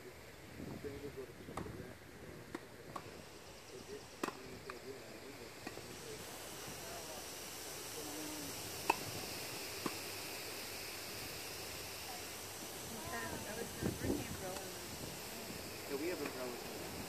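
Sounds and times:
faint voices: 0.0s - 17.0s
steady hiss: 0.0s - 17.0s.

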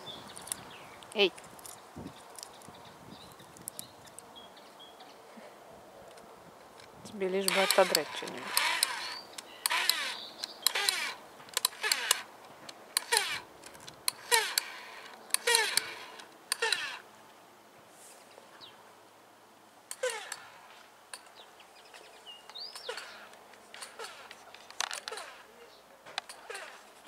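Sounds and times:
bird chirping: 0.0s - 5.3s, 7.2s - 11.2s, 21.2s - 26.7s.

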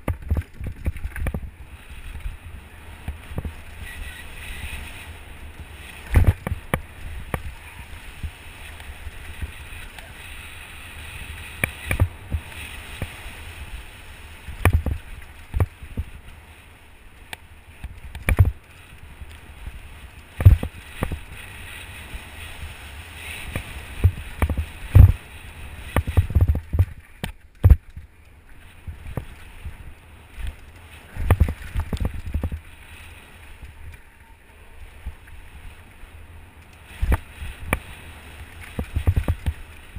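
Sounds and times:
bike knocks and rattles: 0.0s - 2.2s, 5.6s - 7.5s, 17.8s - 18.8s, 20.4s - 21.4s, 25.9s - 28.2s, 37.0s - 39.7s
bike tyre noise on dirt: 0.0s - 39.9s
wind rumble on microphone: 0.0s - 39.9s.

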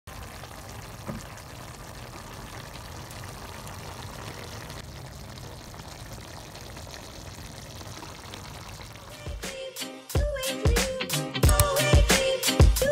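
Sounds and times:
sauce bubbling softly: 0.1s - 9.4s.

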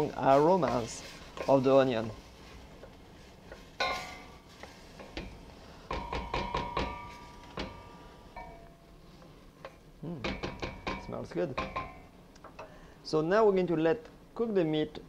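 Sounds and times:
wooden spoon knocking on metal pot: 5.9s - 7.8s, 10.2s - 12.0s.

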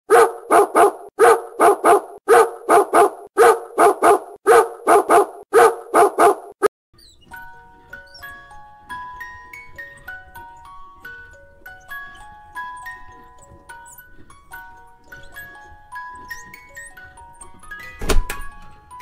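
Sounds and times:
dog barking: 0.1s - 6.7s.

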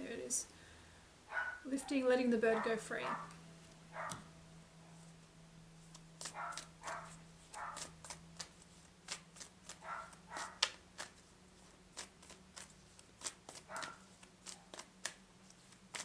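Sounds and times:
cards rustling: 5.8s - 16.0s.

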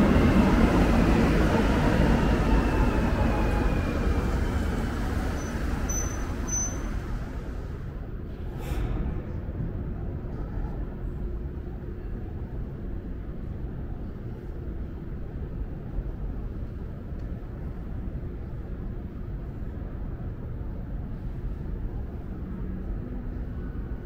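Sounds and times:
train motor whine: 0.0s - 8.0s
train rumble: 0.0s - 24.0s.

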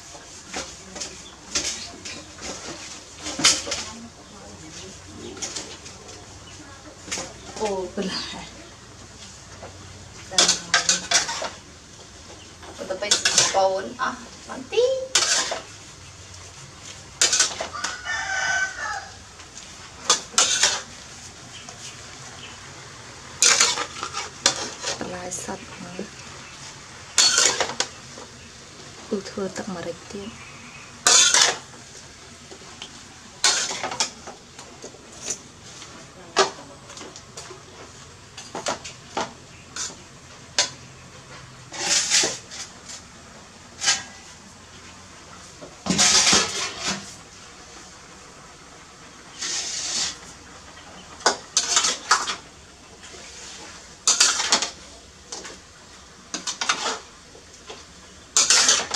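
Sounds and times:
rooster crowing: 17.6s - 19.3s
metal spatula clattering in wok: 20.1s - 20.9s, 27.2s - 27.9s, 31.0s - 31.6s, 33.4s - 34.2s, 54.0s - 54.8s.

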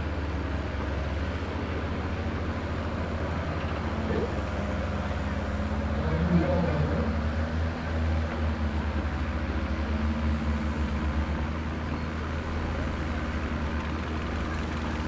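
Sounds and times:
tractor engines idling low: 0.0s - 15.0s.

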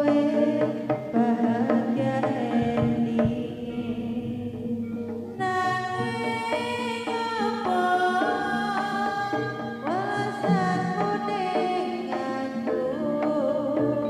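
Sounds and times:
steady held tone: 0.0s - 7.6s
drum strokes: 0.0s - 14.0s.

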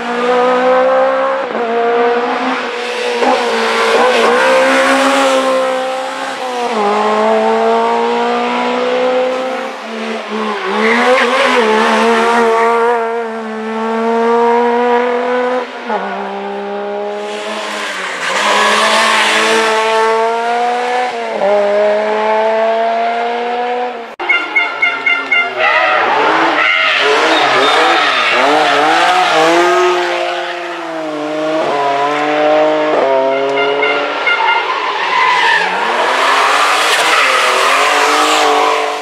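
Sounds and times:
rally car engines accelerating: 0.0s - 39.0s.

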